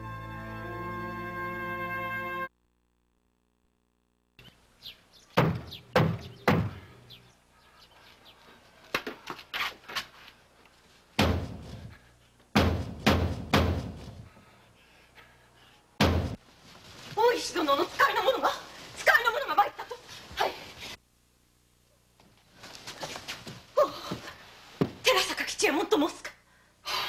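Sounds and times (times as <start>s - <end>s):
fists pounding on wooden gate: 5.4s - 6.8s, 11.2s - 11.8s, 12.5s - 14.2s, 16.0s - 16.4s.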